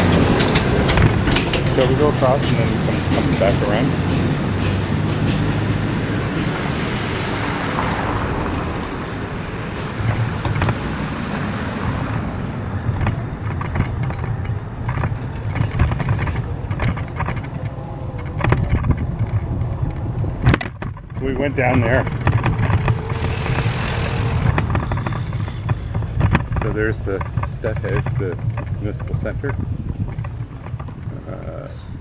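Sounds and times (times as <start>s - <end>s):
bike knocks and rattles: 0.0s - 5.7s, 10.0s - 11.4s, 12.7s - 31.6s
wind buffeting microphone: 0.0s - 32.0s
bicycle rumbling over brick paving: 9.8s - 32.0s.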